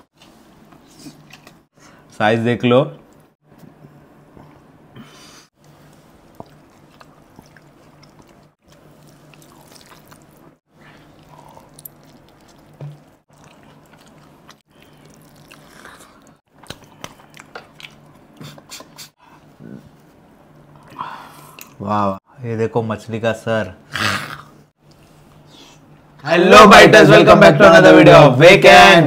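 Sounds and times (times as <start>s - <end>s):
person chewing food: 5.6s - 19.1s.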